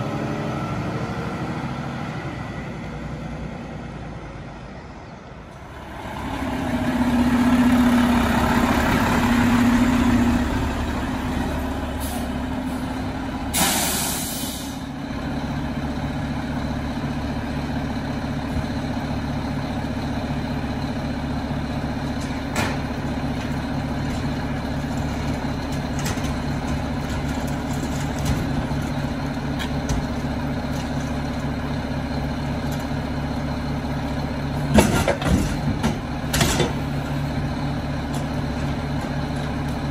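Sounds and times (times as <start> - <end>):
garbage truck diesel engine running: 0.0 - 39.9
hiss of air: 13.5 - 14.8.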